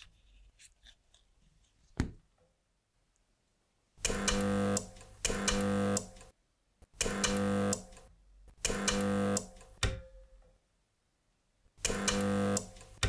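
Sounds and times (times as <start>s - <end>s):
spot welder buzzing hum: 4.0s - 10.1s, 11.8s - 13.0s.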